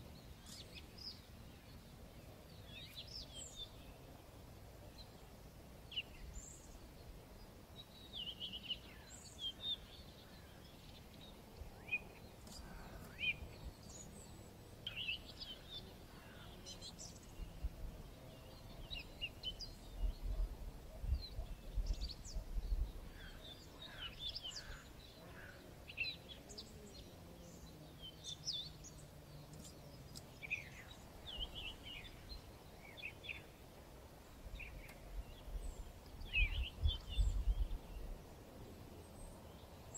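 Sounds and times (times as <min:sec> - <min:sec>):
birds chirping and trilling: 0:00.0 - 0:39.9
wind rumble on microphone: 0:17.1 - 0:23.9, 0:34.4 - 0:39.6.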